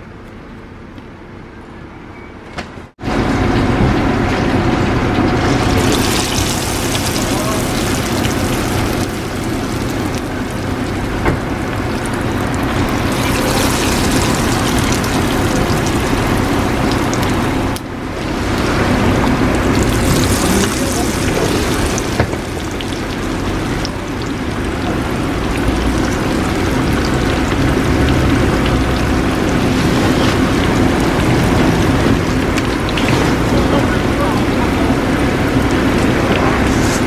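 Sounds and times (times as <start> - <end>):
food deep-frying in hot oil: 3.1 - 37.0.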